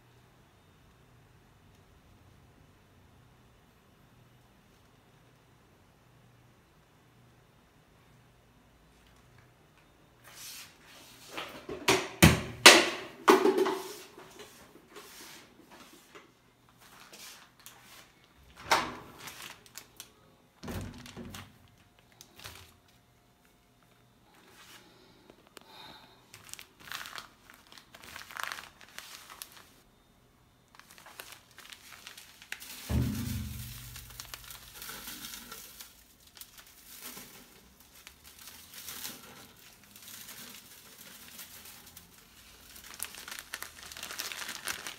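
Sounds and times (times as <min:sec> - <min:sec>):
soft clicks and crinkling: 0:08.9 - 0:10.0, 0:25.2 - 0:25.7
knocks on washing machine: 0:11.8 - 0:13.9, 0:32.9 - 0:33.9
low thump: 0:32.9 - 0:34.4.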